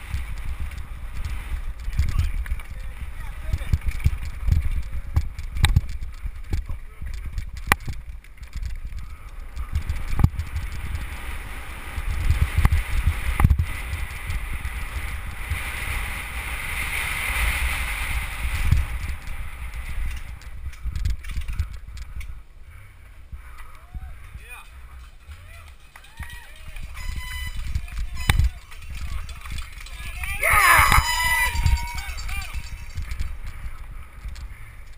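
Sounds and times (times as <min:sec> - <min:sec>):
bike knocking on bumps: 0:00.0 - 0:11.2
wind buffeting microphone: 0:00.0 - 0:34.9
tyres rolling over dirt: 0:24.2 - 0:34.9.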